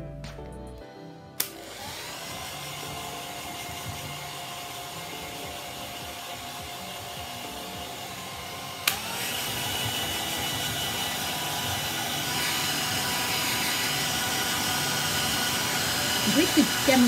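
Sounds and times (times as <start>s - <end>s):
hair dryer switch click: 1.4s - 1.8s, 8.8s - 9.2s
hair dryer blowing: 1.4s - 17.0s.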